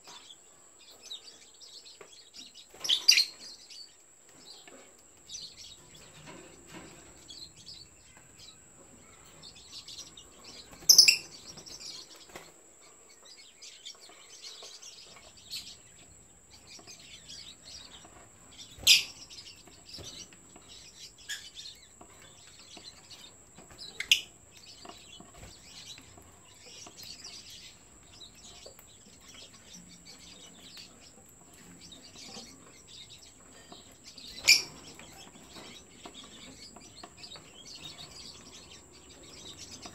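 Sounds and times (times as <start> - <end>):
lovebirds twittering: 0.0 - 39.9.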